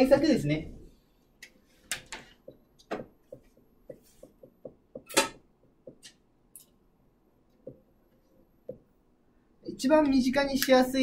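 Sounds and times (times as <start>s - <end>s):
marker writing on whiteboard: 1.5s - 6.2s.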